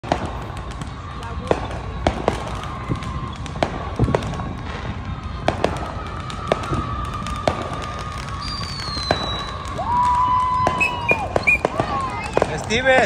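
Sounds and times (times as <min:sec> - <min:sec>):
fireworks bangs and pops: 0:00.0 - 0:13.0
rumble of distant explosions: 0:00.0 - 0:13.0.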